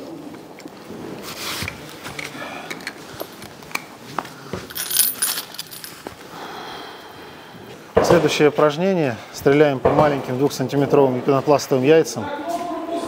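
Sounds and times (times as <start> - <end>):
small metal objects jingling: 4.7 - 6.1.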